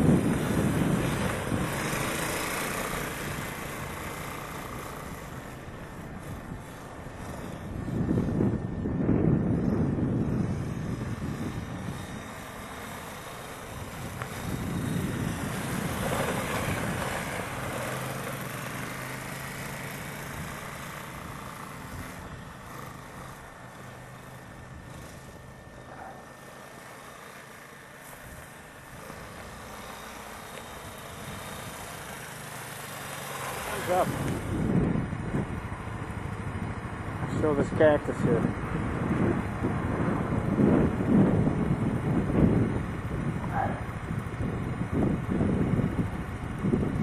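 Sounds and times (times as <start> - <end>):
quad engines running: 0.0 - 47.0.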